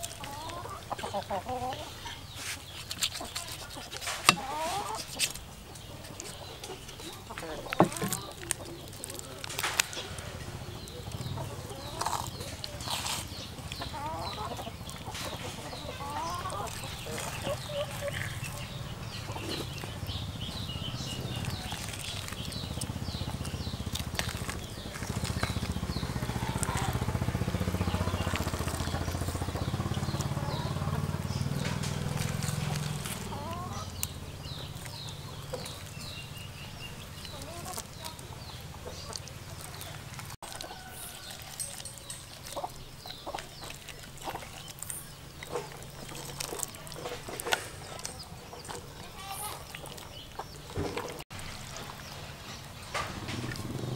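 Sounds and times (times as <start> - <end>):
small birds chirping: 0.0 - 53.9
wet clicks of gutting fish: 20.8 - 27.1.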